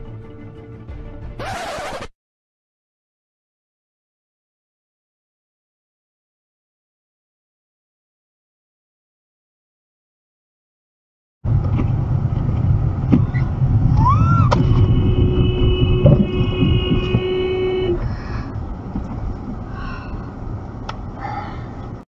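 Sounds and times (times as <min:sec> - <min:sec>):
car engine and road rumble: 0:11.4 - 0:22.0
car horn: 0:14.5 - 0:18.1.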